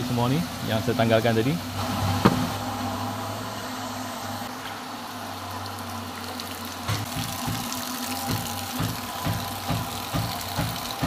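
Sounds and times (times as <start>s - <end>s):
water pump humming: 0.0s - 11.0s
water spraying and splashing: 4.4s - 11.0s.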